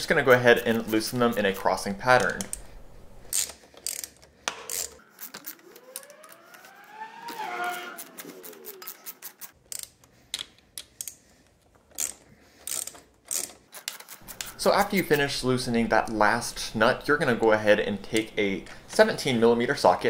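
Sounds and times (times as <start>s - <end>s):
socket ratchet clicking: 3.3s - 5.5s, 11.9s - 14.6s
tone rising and falling in pitch: 5.3s - 9.2s.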